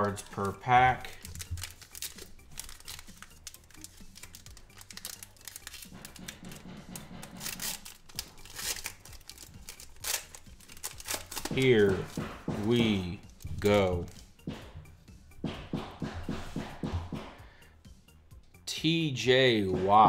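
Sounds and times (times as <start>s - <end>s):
foil wrapper crinkling and tearing: 0.0s - 6.6s, 7.2s - 12.2s.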